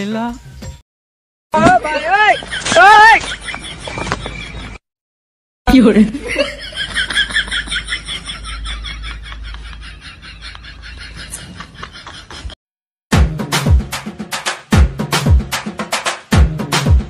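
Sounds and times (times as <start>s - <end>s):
laughter sound effect: 6.0s - 12.6s.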